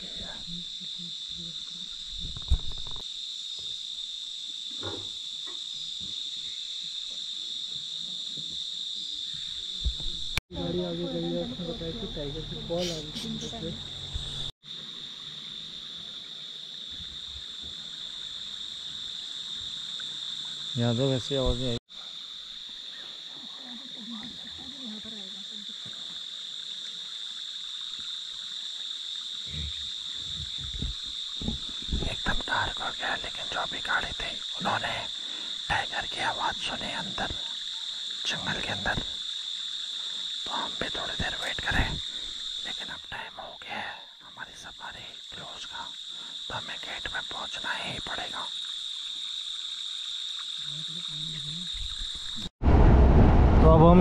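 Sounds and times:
high-pitched insect chorus: 0:00.0 - 0:52.5
thump: 0:09.8 - 0:10.2.

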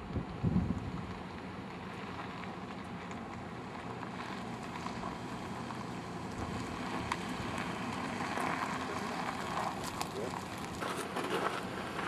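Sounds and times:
wind noise on microphone: 0:00.0 - 0:01.1.

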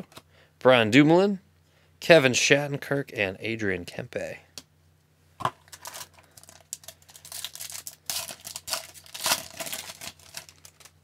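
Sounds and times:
foil wrapper tearing and crinkling: 0:05.7 - 0:11.0.

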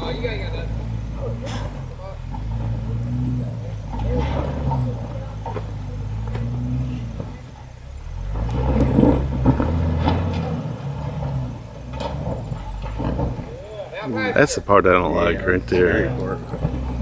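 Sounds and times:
jeep engine revving: 0:00.0 - 0:17.0
tires spinning and spraying dirt: 0:00.0 - 0:17.0
wheels knocking on rock: 0:08.3 - 0:13.9.

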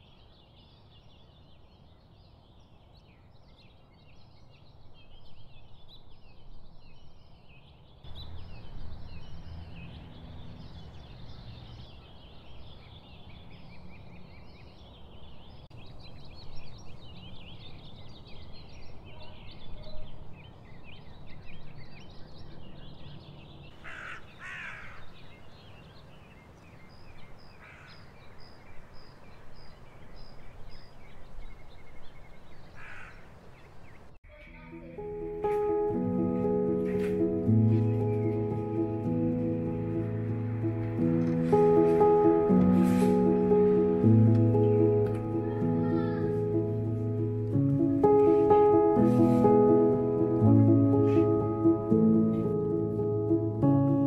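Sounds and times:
small birds chirping: 0:00.0 - 0:54.0
loud harsh bird calls: 0:23.7 - 0:25.5, 0:27.5 - 0:28.4, 0:32.7 - 0:34.1.

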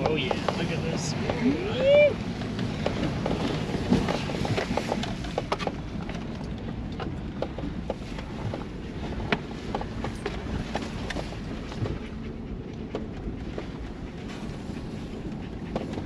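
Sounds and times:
engine and road rumble: 0:00.0 - 0:16.0.

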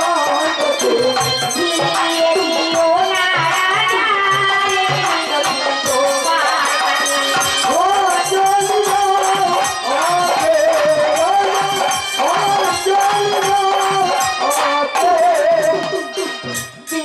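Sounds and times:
drum beats: 0:00.0 - 0:17.0
jingling percussion: 0:00.0 - 0:17.0.

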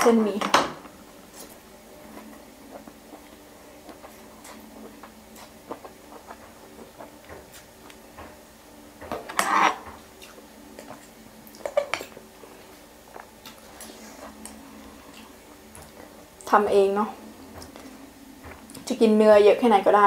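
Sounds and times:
slurping: 0:01.3 - 0:08.0.

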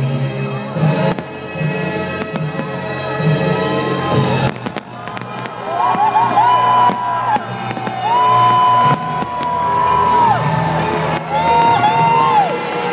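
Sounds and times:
crowd noise: 0:00.0 - 0:12.9
firework bangs: 0:00.8 - 0:12.9
crowd whistling and whooping: 0:03.4 - 0:12.9.

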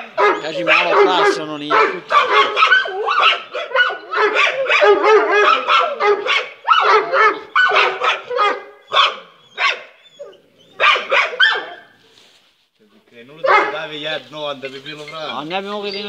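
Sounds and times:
dogs barking: 0:00.0 - 0:12.0, 0:13.4 - 0:14.0.

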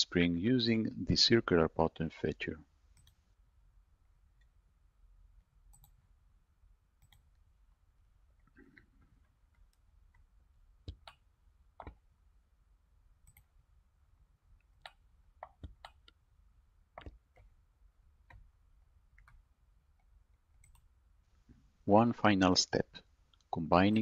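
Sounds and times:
computer mouse clicks: 0:03.0 - 0:03.2, 0:05.7 - 0:06.1, 0:07.0 - 0:07.4, 0:08.7 - 0:12.0, 0:13.2 - 0:13.5, 0:14.6 - 0:16.2, 0:16.9 - 0:17.6, 0:19.1 - 0:19.4, 0:20.0 - 0:20.9.

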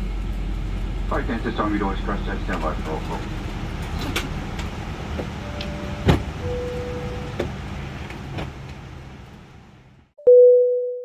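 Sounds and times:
airliner cabin noise: 0:00.0 - 0:10.0
loud steady beep: 0:05.4 - 0:07.3, 0:10.2 - 0:11.0.

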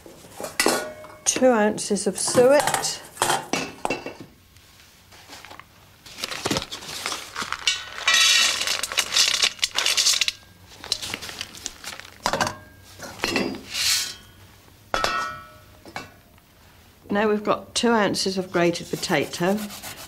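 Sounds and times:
paper packet crinkling and rustling: 0:05.2 - 0:12.3.

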